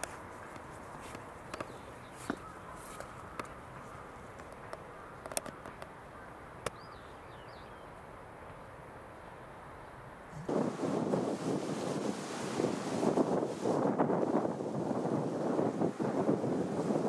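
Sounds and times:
steady low hiss: 0.0s - 17.0s
bird chirps: 6.7s - 8.0s.

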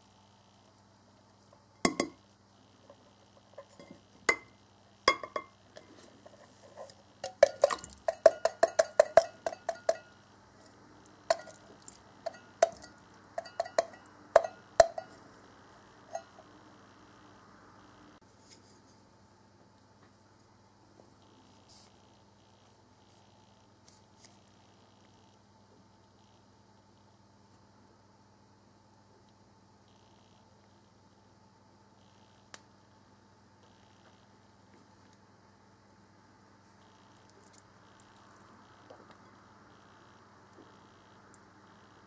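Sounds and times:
metal can knocking on ceramic bowl: 1.9s - 2.2s, 5.1s - 5.5s, 7.2s - 10.1s.

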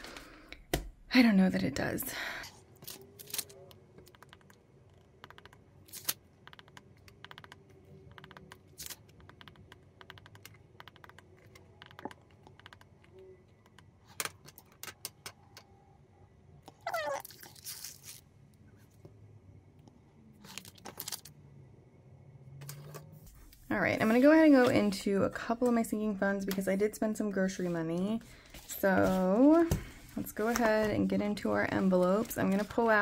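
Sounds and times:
paper rustling: 28.5s - 33.0s.

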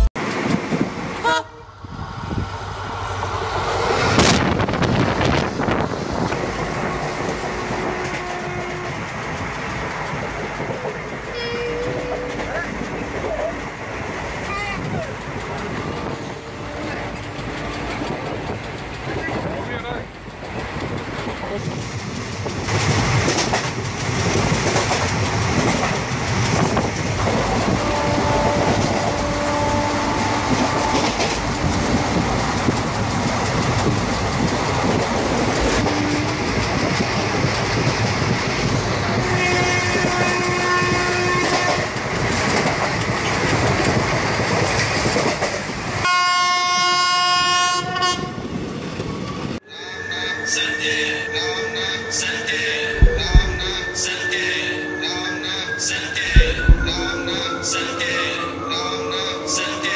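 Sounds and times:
train coach rumbling and rattling: 0.0s - 59.9s
train horn: 1.2s - 1.7s, 7.4s - 9.2s, 16.0s - 18.0s, 27.3s - 32.4s, 35.8s - 36.5s, 39.1s - 41.9s, 46.0s - 48.4s.

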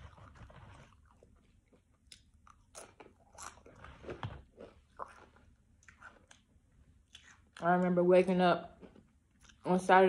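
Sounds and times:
person chewing crisp chips: 0.0s - 7.9s.

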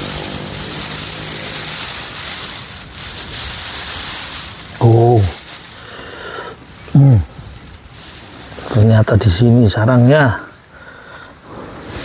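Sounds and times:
dry straw rustling and crackling: 0.0s - 10.2s, 11.0s - 12.0s.

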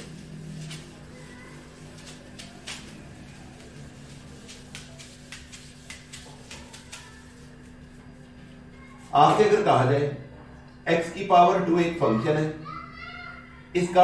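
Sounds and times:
duster wiping whiteboard: 0.0s - 9.7s.

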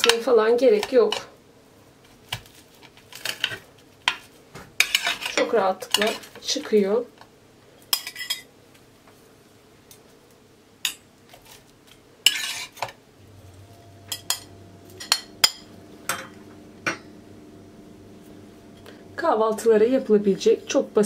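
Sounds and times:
metal spatula scraping plates: 4.8s - 6.4s, 12.2s - 13.0s, 13.7s - 17.1s.

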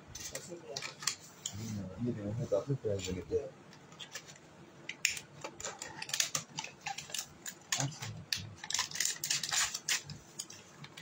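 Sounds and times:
plastic packaging crinkling: 5.4s - 11.0s.

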